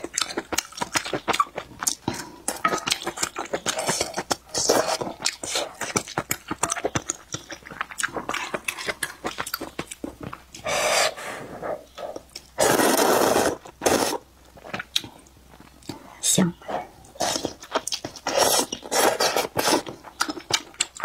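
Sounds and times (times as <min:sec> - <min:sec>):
noodles being slurped: 0:12.6 - 0:14.2, 0:18.2 - 0:20.6.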